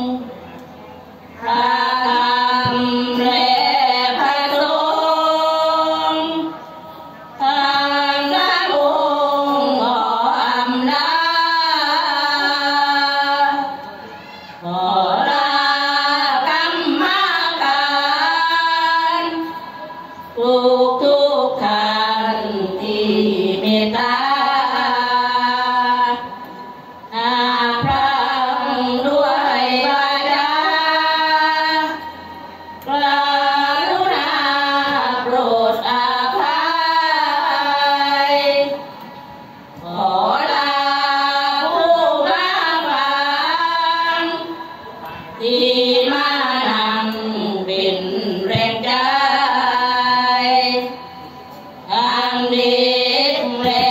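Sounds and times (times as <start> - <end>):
brief knock: 27.8 - 28.0.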